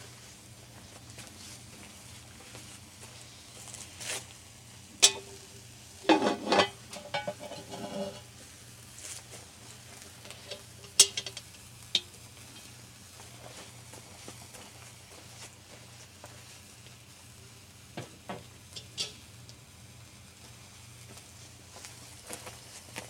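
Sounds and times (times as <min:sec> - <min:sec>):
cast iron pot clanking: 0:05.0 - 0:08.3, 0:10.4 - 0:12.7, 0:18.0 - 0:19.2.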